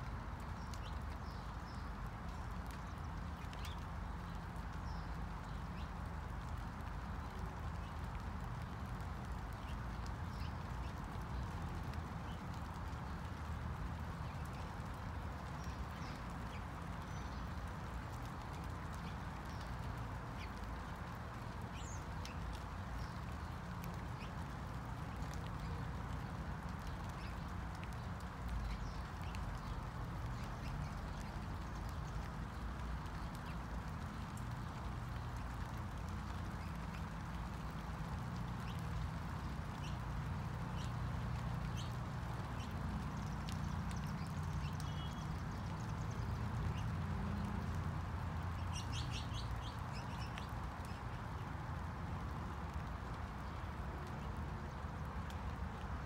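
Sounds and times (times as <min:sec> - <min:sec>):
raindrops ticking: 0:00.0 - 0:56.0
steady rain falling: 0:00.0 - 0:56.0.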